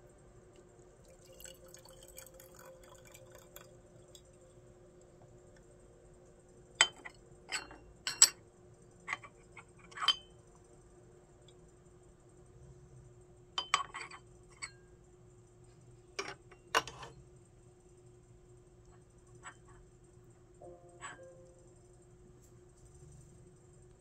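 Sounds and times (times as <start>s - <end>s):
faint steady hum: 0.0s - 24.0s
tea dripping: 0.5s - 6.4s
cups and lids clinking: 6.8s - 8.4s.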